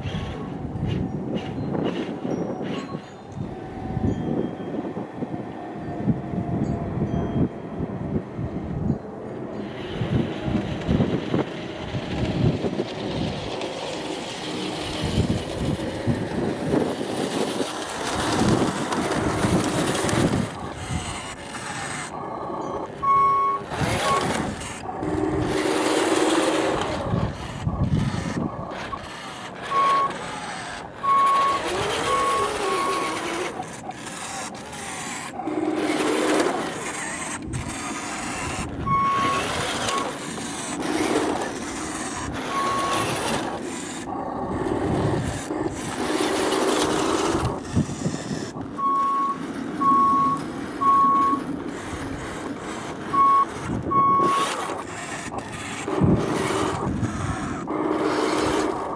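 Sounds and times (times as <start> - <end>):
model truck running over gravel: 0.0 - 3.0, 9.6 - 58.9
high reversing beeps: 19.7 - 34.2, 35.8 - 40.2, 41.9 - 43.5, 47.2 - 51.6, 53.0 - 54.8.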